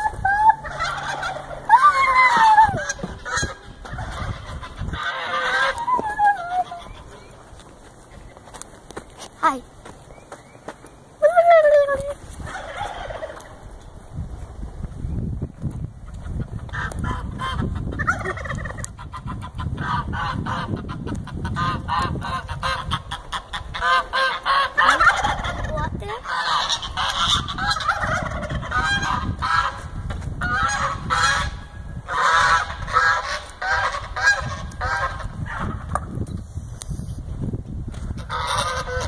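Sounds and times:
fowl calling in short repeated notes: 0:38.2 - 0:39.0.

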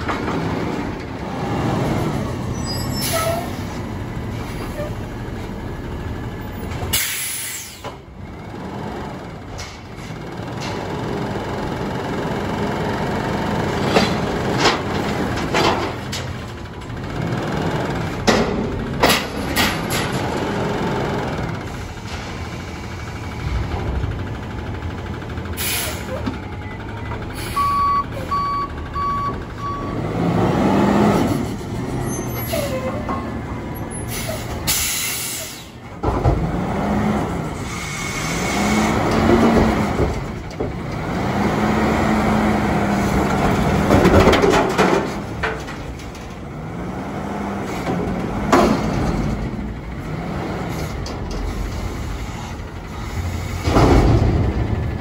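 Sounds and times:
truck engine revving: 0:00.0 - 0:07.0, 0:08.2 - 0:55.0
reverse alarm beeping: 0:27.5 - 0:30.0
thump: 0:53.6 - 0:54.7.

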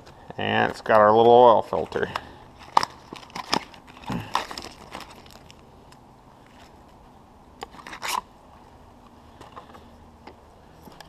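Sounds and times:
packaging rustling: 0:01.6 - 0:05.7, 0:07.6 - 0:08.3
packaging crinkling: 0:01.7 - 0:05.7, 0:07.6 - 0:08.3.

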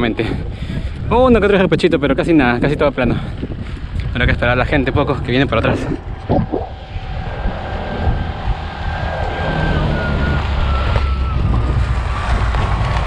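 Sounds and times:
wind rumbling on microphone: 0:00.0 - 0:13.0
thin whine falling in pitch: 0:06.2 - 0:07.0.

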